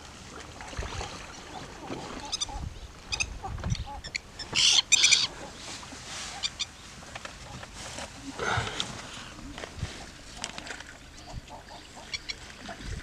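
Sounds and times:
birds calling high-pitched: 0:02.2 - 0:05.3.

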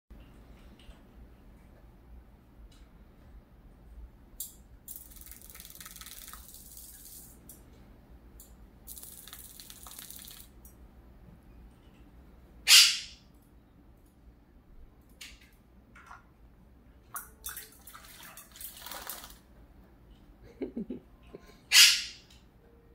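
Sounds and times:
bird splashing in water bowl: 0:04.9 - 0:07.4, 0:08.9 - 0:10.6, 0:17.2 - 0:19.4.

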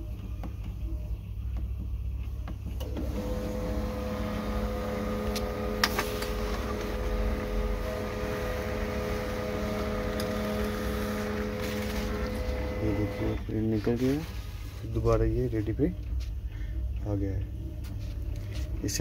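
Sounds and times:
printer motor hum: 0:02.8 - 0:13.5.

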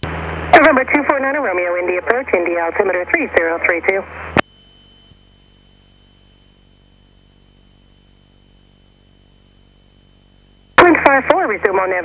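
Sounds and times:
intercom hiss and hum: 0:00.0 - 0:12.0
air traffic control radio transmission: 0:00.5 - 0:04.4, 0:10.8 - 0:12.0
thin high whine: 0:04.0 - 0:12.0.

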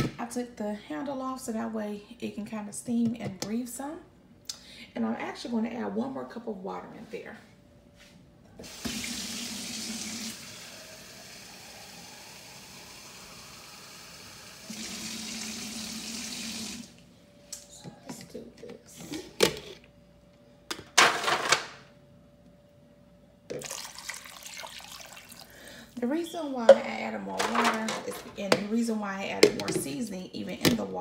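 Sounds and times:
tap water running into cup: 0:23.6 - 0:25.5.

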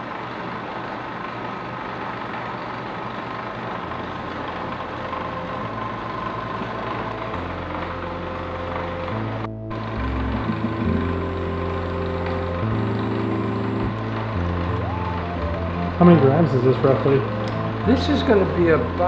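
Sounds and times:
lab equipment hum and whir: 0:00.0 - 0:19.0
low drone changing pitch: 0:04.0 - 0:19.0.

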